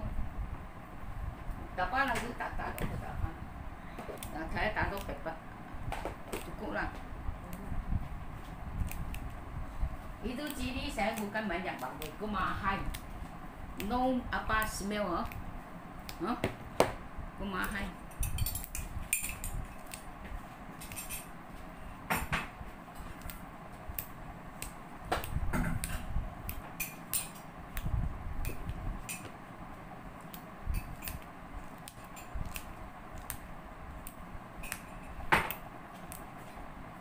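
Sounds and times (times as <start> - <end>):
utensils and cookware clinking: 18.1 - 19.9.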